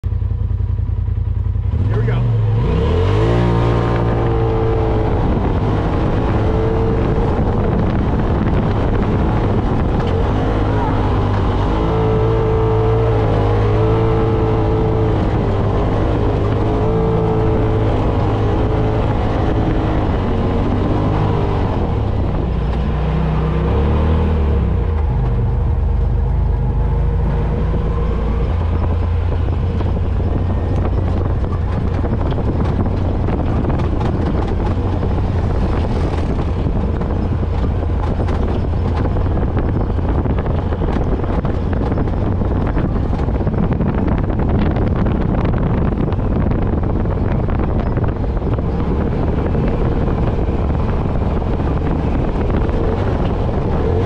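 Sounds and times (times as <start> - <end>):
engine revving under load: 1.6 - 54.0.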